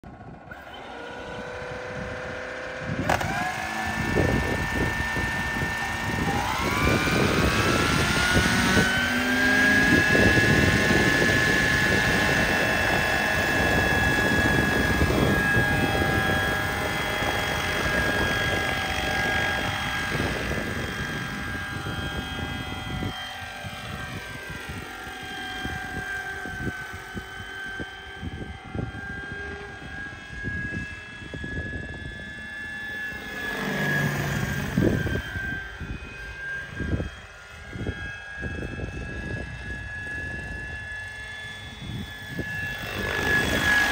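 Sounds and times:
model helicopter whine: 0:00.0 - 0:43.9.

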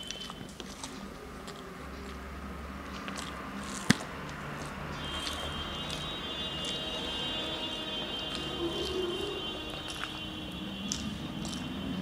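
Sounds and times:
wet chewing and smacking: 0:00.0 - 0:12.0
fingers squishing rice on plate: 0:02.9 - 0:07.0.

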